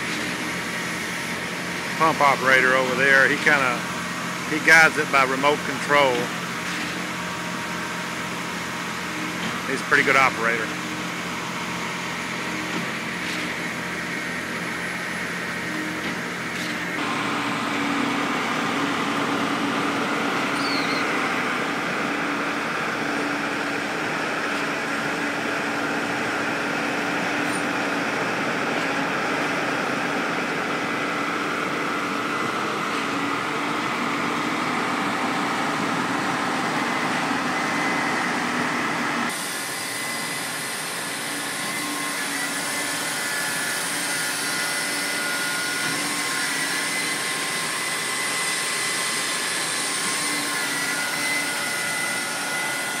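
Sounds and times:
diesel engine and pump running: 0.0 - 53.0
hissy machine with high tone: 39.3 - 53.0.

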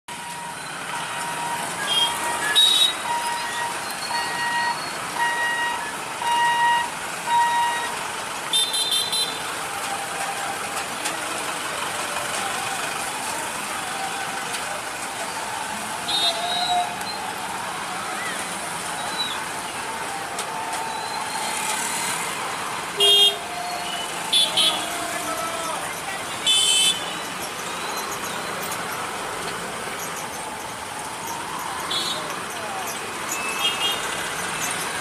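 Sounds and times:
reversing beeper: 0.1 - 7.9
road traffic: 0.1 - 35.0
vehicle horns honking: 1.3 - 7.9, 8.5 - 9.6, 16.1 - 17.0, 23.0 - 25.4, 26.3 - 27.3, 33.4 - 34.2.

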